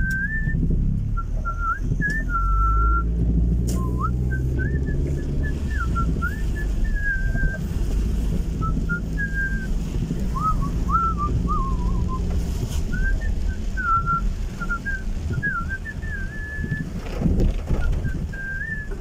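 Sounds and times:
person whistling a melody: 0:00.0 - 0:03.2, 0:03.8 - 0:07.7, 0:08.6 - 0:09.7, 0:10.3 - 0:12.3, 0:12.9 - 0:16.9, 0:18.1 - 0:19.0
low rumble of moving car: 0:00.0 - 0:19.0.

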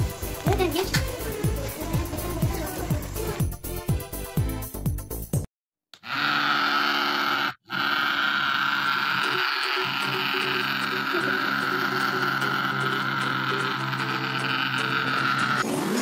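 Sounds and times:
small battery motor buzzing: 0:06.0 - 0:15.6.

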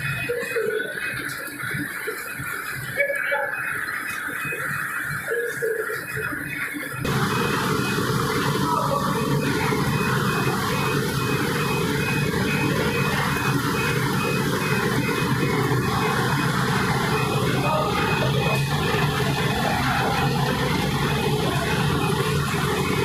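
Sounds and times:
drive motor hum: 0:07.0 - 0:23.0.

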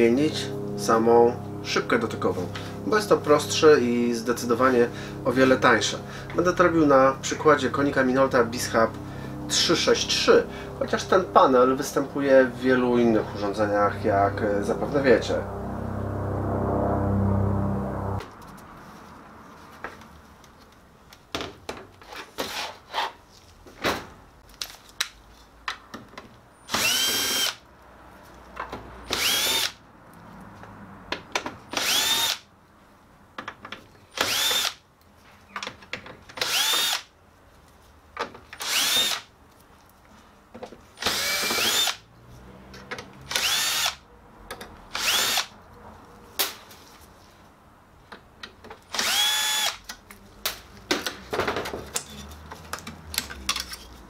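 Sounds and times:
cordless drill whining: 0:26.7 - 0:27.6, 0:29.1 - 0:29.8, 0:31.8 - 0:32.4, 0:34.2 - 0:34.8, 0:36.4 - 0:37.0, 0:38.6 - 0:39.3, 0:41.0 - 0:42.0, 0:43.3 - 0:44.0, 0:45.0 - 0:45.5, 0:48.9 - 0:49.8.

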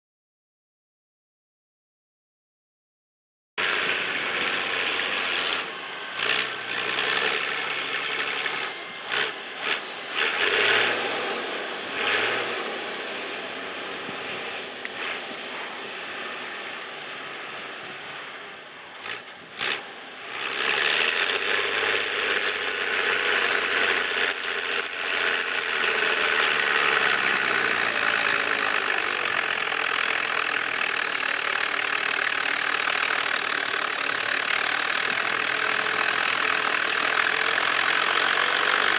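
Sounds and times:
high whine: 0:03.6 - 0:29.6
tractor diesel engine under load: 0:03.6 - 0:38.9.

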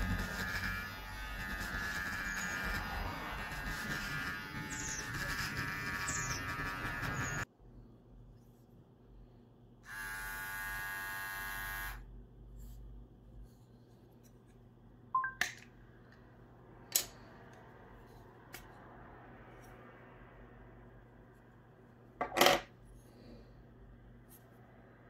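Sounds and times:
hair trimmer buzzing: 0:00.0 - 0:07.5, 0:09.8 - 0:12.1.

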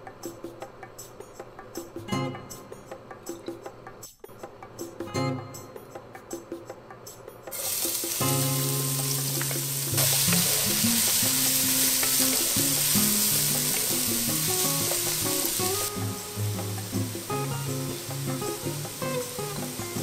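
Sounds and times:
onion sizzling in hot oil: 0:07.5 - 0:20.0.

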